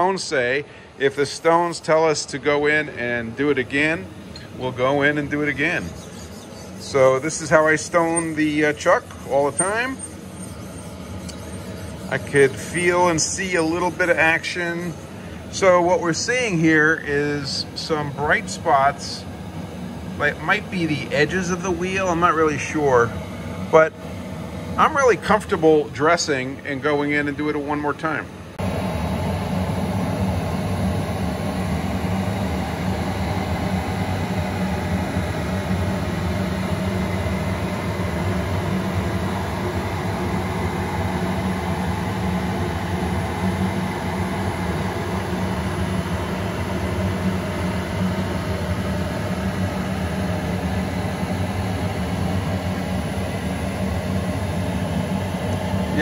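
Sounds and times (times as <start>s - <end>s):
surface grinder droning: 3.5s - 18.6s.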